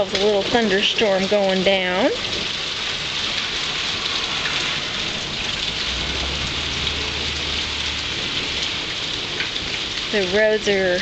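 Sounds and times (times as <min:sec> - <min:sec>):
heavy rain pouring: 0:00.0 - 0:11.0
low rumble: 0:03.6 - 0:09.7.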